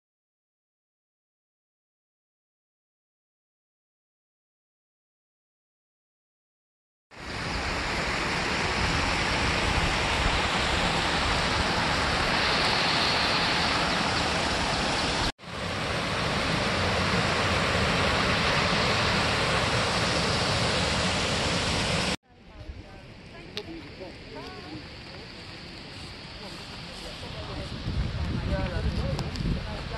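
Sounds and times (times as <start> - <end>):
river rushing over rapids: 7.2 - 22.2.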